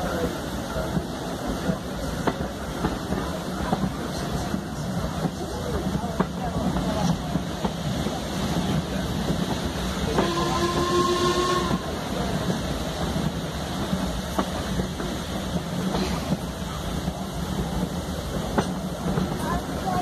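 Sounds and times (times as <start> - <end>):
train rumbling on rails: 0.0 - 20.0
locomotive whistle: 10.1 - 12.0.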